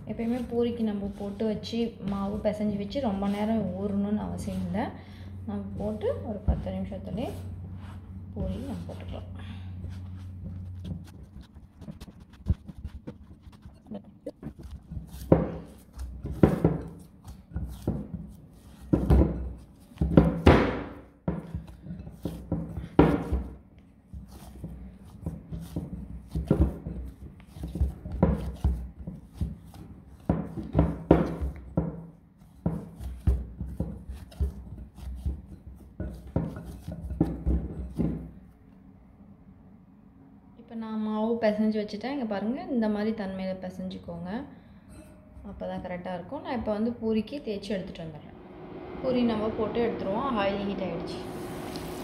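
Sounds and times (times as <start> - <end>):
dough thumping while kneaded: 5.7 - 38.5.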